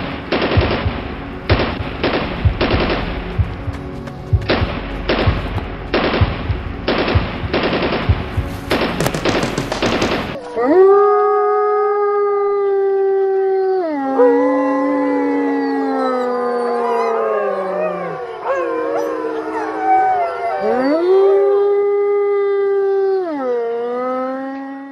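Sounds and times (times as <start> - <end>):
wolves howling: 10.3 - 24.9.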